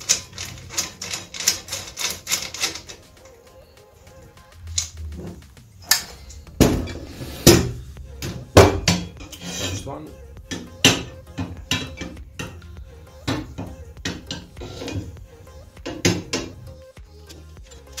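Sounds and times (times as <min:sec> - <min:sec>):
metal clanks and knocks: 0:00.0 - 0:03.1, 0:04.8 - 0:09.9, 0:10.5 - 0:12.6, 0:13.2 - 0:15.2, 0:15.8 - 0:16.6
metal scrapes and taps: 0:00.0 - 0:03.4, 0:04.7 - 0:09.9, 0:10.5 - 0:15.2, 0:15.8 - 0:16.6, 0:17.2 - 0:18.0.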